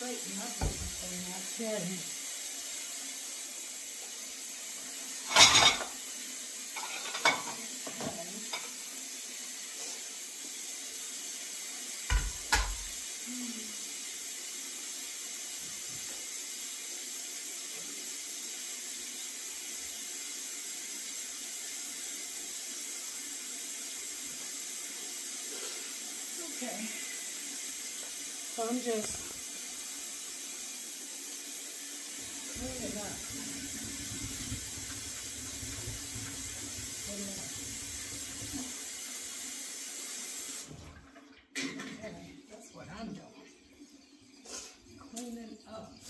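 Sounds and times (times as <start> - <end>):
dishes clattering: 5.2 - 6.0, 6.7 - 8.8, 12.1 - 12.9, 41.5 - 42.0.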